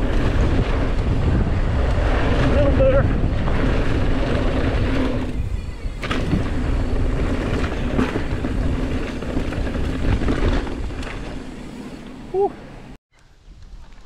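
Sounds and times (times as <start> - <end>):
wind buffeting microphone: 0.0 - 11.7
bike tyres rolling over dirt: 0.0 - 12.3
bike landing thump: 6.0 - 6.6.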